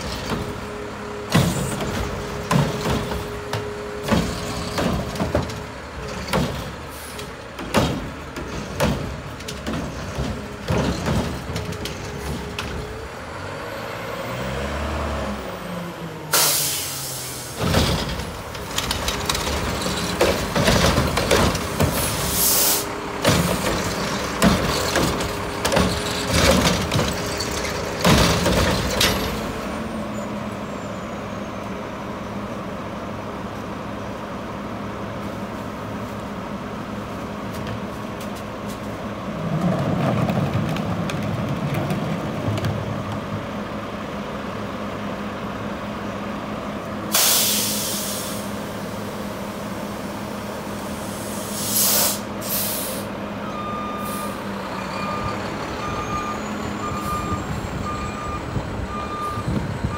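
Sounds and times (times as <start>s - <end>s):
metal clanks and bangs: 1.3s - 12.9s, 17.6s - 22.3s, 23.2s - 29.6s
air brake hiss: 16.3s - 17.6s, 22.0s - 22.9s, 47.1s - 48.6s, 50.8s - 53.2s, 54.0s - 54.4s.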